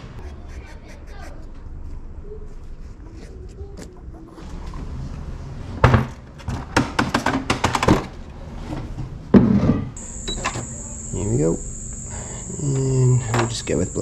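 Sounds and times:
high-pitched machine whine: 10.0 - 14.0.

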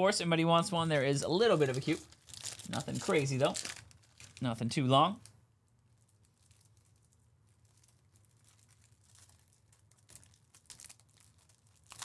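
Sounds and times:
trading cards rustling: 0.7 - 5.3.

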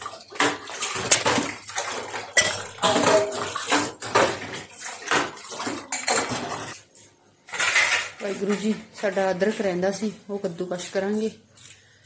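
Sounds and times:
dishes clinking in metal sink: 0.0 - 6.8, 7.4 - 9.7
tap water running: 0.0 - 11.7.

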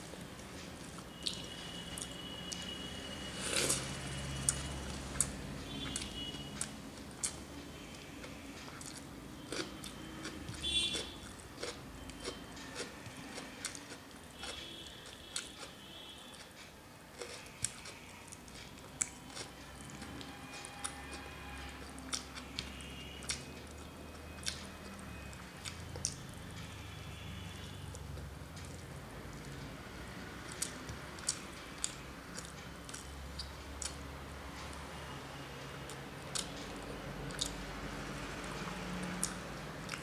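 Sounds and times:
mouth chewing: 4.4 - 7.4, 8.2 - 16.6, 17.2 - 25.0, 30.4 - 34.0, 37.3 - 37.6, 39.1 - 40.0.

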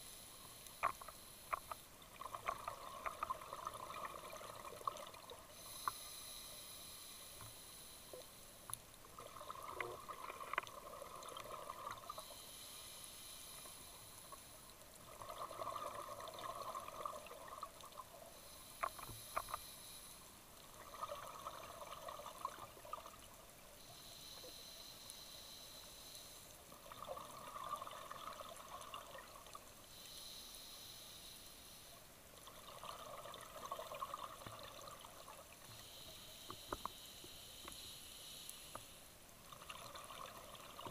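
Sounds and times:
regulator hiss on inhale: 0.0 - 1.9, 5.5 - 8.8, 11.3 - 14.9, 15.6 - 22.0, 23.8 - 26.8, 29.5 - 32.1, 35.6 - 39.3.

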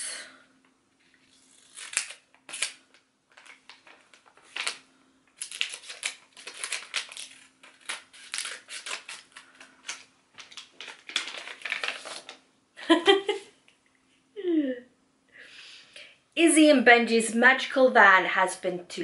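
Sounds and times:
plastic crinkling: 1.0 - 12.4.

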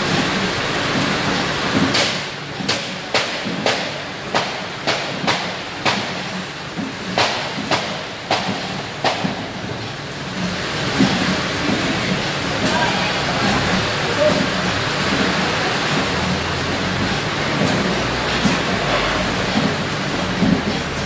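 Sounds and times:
conveyor machinery running: 0.0 - 21.0
sharp clacks: 1.0 - 9.5.

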